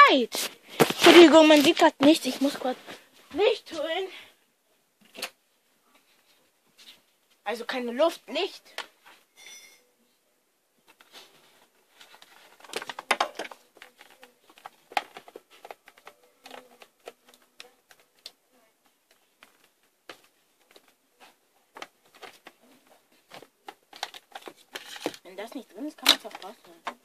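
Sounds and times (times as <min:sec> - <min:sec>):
soft clicks and rustles of handling: 0:10.8 - 0:27.0.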